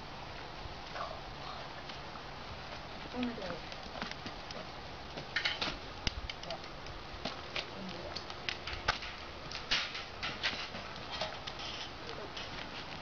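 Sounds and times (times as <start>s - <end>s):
hooves shifting on asphalt: 0.0s - 13.0s
cart and harness rattling: 7.5s - 13.0s.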